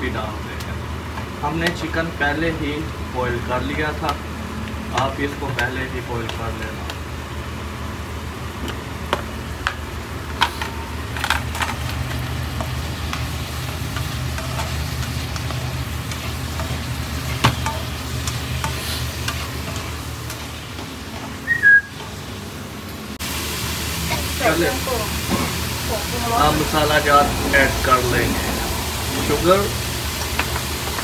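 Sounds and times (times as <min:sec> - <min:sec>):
chicken sizzling in a pan: 0:01.4 - 0:31.0
spatula tapping and scraping pan: 0:12.6 - 0:21.4.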